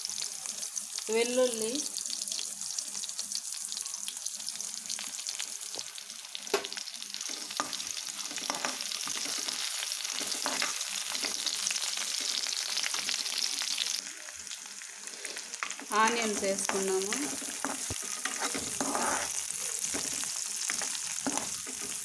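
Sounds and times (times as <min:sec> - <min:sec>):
chillies sizzling in hot oil: 0:00.0 - 0:22.0
spatula stirring: 0:07.2 - 0:13.5, 0:15.0 - 0:22.0.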